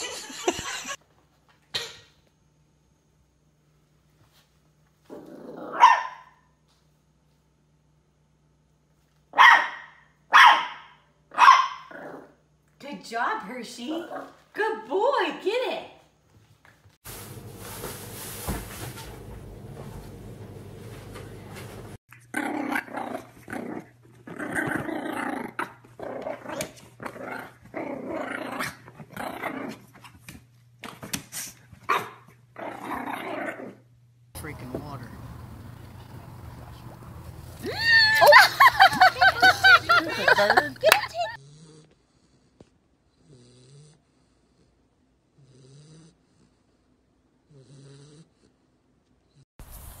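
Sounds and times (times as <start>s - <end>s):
small dog growling: 5.0s - 5.8s, 11.9s - 12.4s, 22.1s - 29.9s, 32.6s - 33.8s, 41.2s - 46.8s, 47.4s - 48.7s
dog snoring: 41.4s - 49.4s.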